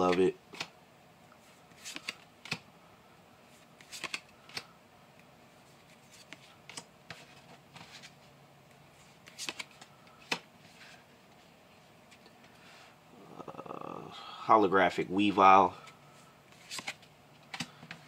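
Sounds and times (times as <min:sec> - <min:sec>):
trading cards being flipped: 0:01.7 - 0:02.6, 0:03.7 - 0:04.7, 0:05.7 - 0:08.2, 0:09.0 - 0:11.0, 0:15.8 - 0:18.0.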